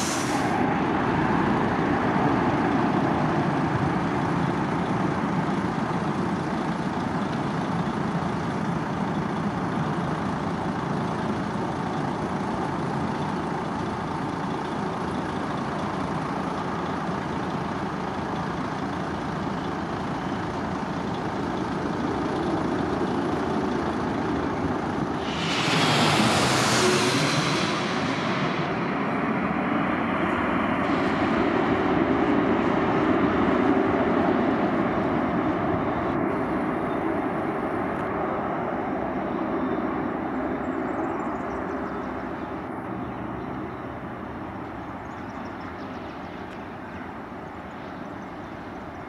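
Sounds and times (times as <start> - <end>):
loud rush of noise: 0.0 - 4.3, 24.0 - 41.0
jet engines rumbling: 0.0 - 49.0.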